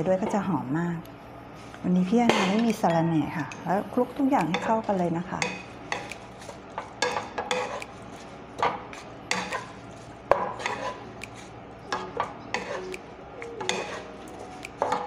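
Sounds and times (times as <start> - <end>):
spatulas scraping a pan: 4.5 - 11.5, 12.5 - 12.9, 13.6 - 14.2.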